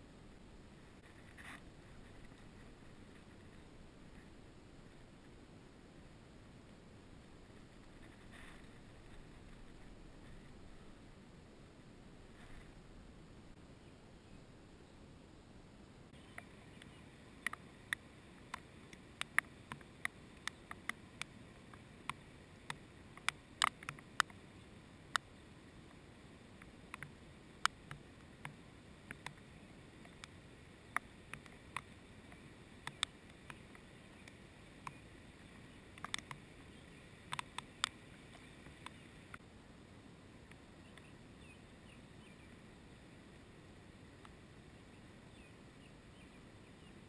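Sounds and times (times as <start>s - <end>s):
faint outdoor background: 0.0s - 47.0s
sharp clicks and ticks: 16.2s - 24.4s, 26.6s - 35.0s, 35.9s - 36.5s, 37.2s - 39.4s.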